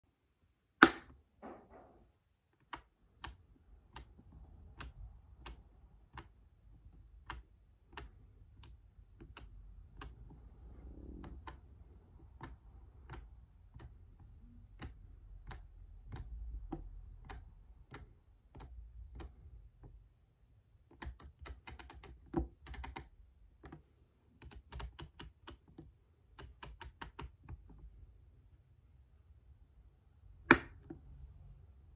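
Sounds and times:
sharp clicking of switching circuit: 30.5s - 31.0s.

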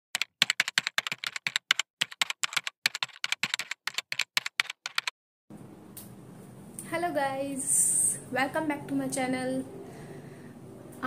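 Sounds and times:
rapid keyboard key clicks: 0.1s - 5.1s.

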